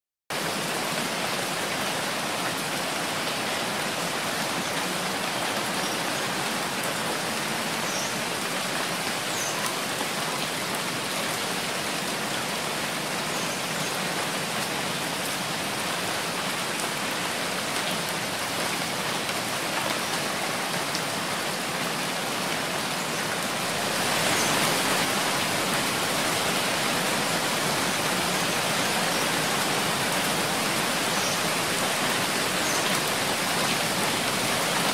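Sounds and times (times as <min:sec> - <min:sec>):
heavy rainfall: 0:00.3 - 0:34.9.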